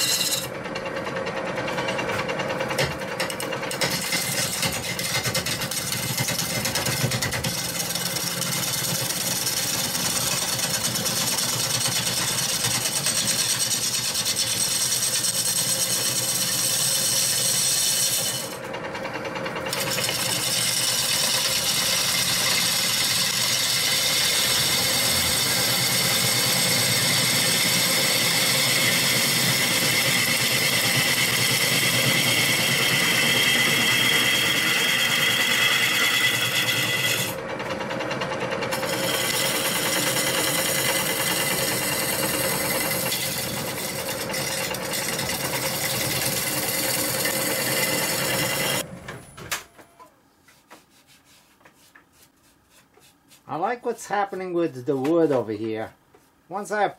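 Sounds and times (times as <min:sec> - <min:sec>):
gouge scraping wood on lathe: 0:00.0 - 0:00.5, 0:02.8 - 0:18.7, 0:19.6 - 0:37.4, 0:38.6 - 0:48.8
wood lathe running: 0:00.0 - 0:48.9.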